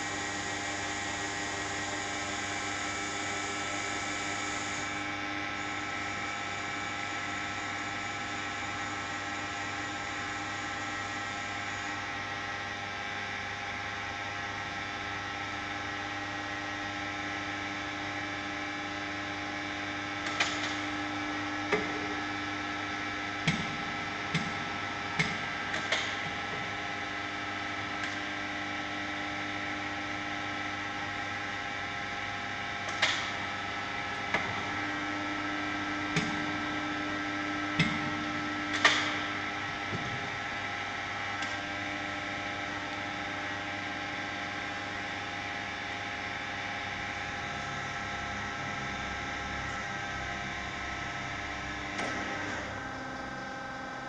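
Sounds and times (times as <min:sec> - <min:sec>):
lathe machine humming: 0:00.0 - 0:14.3.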